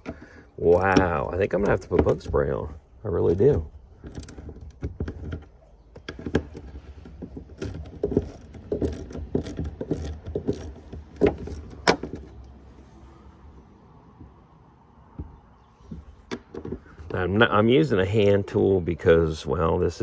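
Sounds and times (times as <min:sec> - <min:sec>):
hand tools clicking and clanking: 0:00.0 - 0:12.5.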